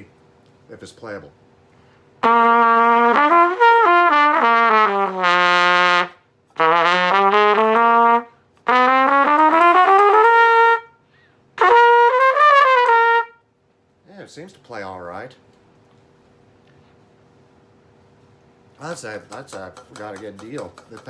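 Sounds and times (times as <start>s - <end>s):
cornet playing: 2.2s - 13.5s.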